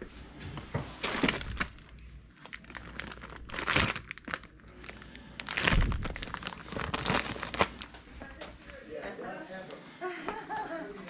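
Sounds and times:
plastic bag crinkling: 1.0 - 8.0.

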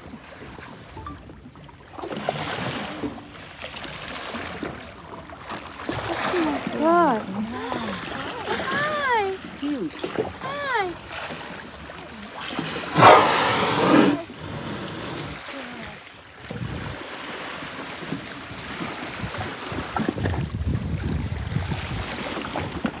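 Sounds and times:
water lapping and sloshing: 0.0 - 23.0
whale blowhole exhale: 12.3 - 15.5.

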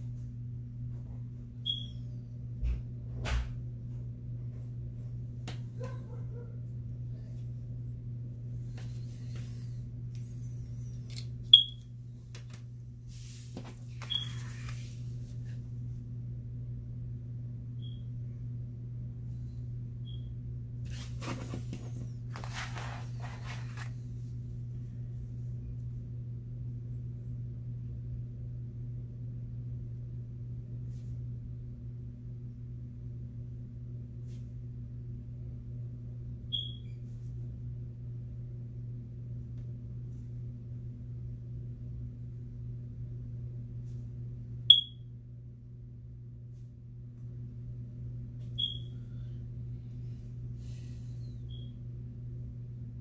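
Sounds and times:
low room hum: 0.0 - 53.0
paper rustling on desk: 12.3 - 15.6, 20.8 - 24.1
short high chirps: 44.7 - 45.0, 48.6 - 48.9.

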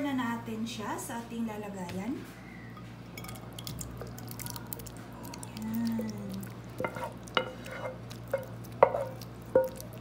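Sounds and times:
thick sauce plopping and dripping: 3.2 - 10.0
spoon scraping a pan: 6.8 - 9.8.

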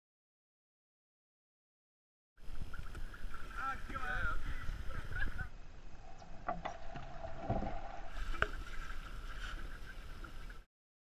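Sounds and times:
faint water sounds: 2.4 - 10.7.

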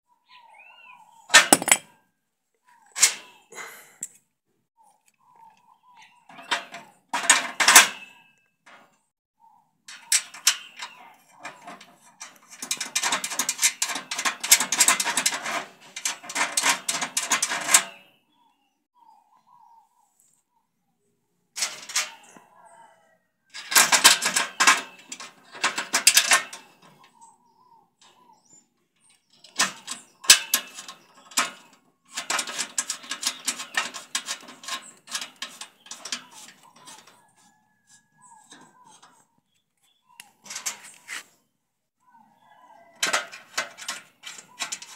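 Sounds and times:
metallic clicking and rattling: 1.3 - 1.9, 9.9 - 18.0, 23.6 - 26.9, 29.3 - 37.2, 43.0 - 44.9.

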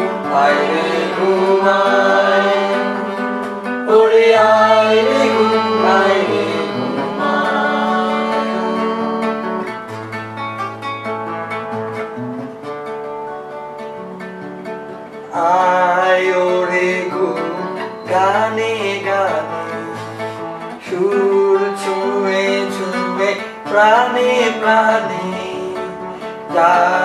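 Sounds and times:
man singing: 0.0 - 3.2, 3.9 - 9.8, 15.3 - 27.0
acoustic guitar chords: 0.0 - 27.0.

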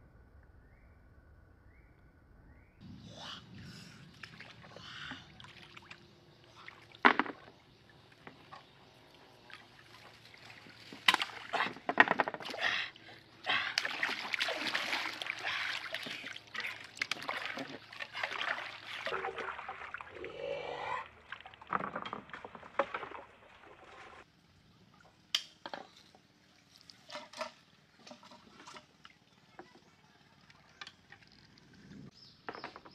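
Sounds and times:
water splashing around canoe: 4.1 - 20.2, 21.0 - 24.3.

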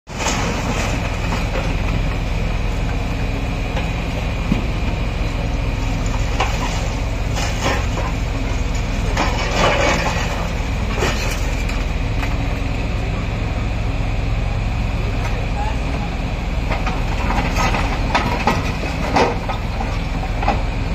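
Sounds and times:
debris crunching and clattering: 0.1 - 2.1, 6.0 - 12.5, 16.7 - 20.6
diesel engine running with whine: 0.1 - 20.9.

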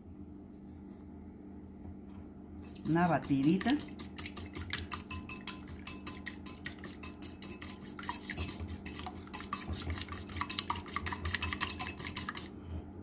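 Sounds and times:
fork beating eggs in bowl: 2.6 - 12.6.

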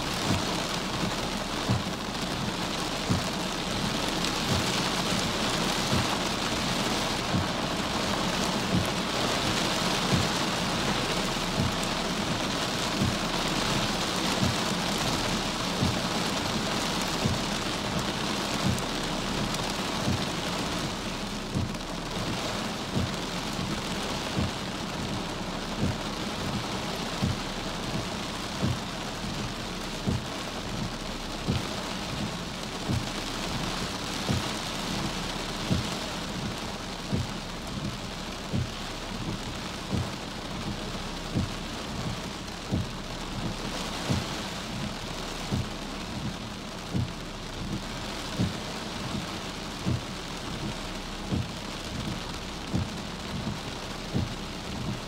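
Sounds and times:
heavy rain on car roof: 0.0 - 55.0
soft low thump: 1.6 - 2.0, 19.4 - 21.8, 27.2 - 29.4, 30.0 - 30.9, 34.3 - 55.0.

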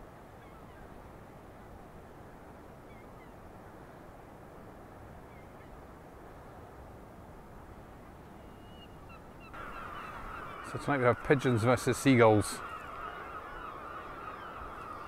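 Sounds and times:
faint seagull calls: 0.4 - 0.9, 8.4 - 15.0.

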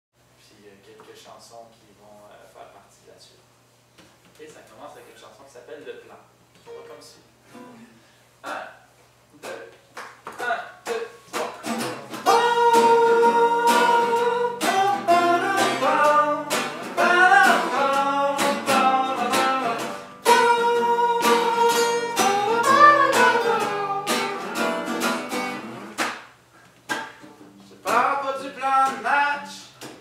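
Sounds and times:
acoustic guitars plucked: 6.7 - 8.0, 10.4 - 26.2, 26.9 - 29.6
man singing: 12.2 - 24.9, 27.8 - 29.8.

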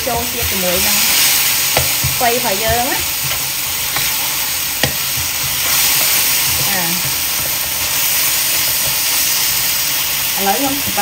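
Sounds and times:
greens sizzling in a wok: 0.0 - 11.0
spatula stirring: 0.0 - 11.0
spatula knocking against pan: 1.7 - 4.2, 4.8 - 7.6.

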